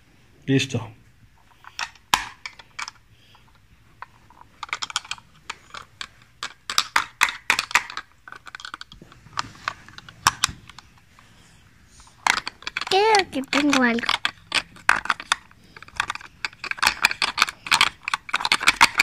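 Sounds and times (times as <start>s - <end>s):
plastic toy clicking and clattering: 1.6s - 3.0s, 4.0s - 9.0s, 9.6s - 10.8s, 12.1s - 19.0s.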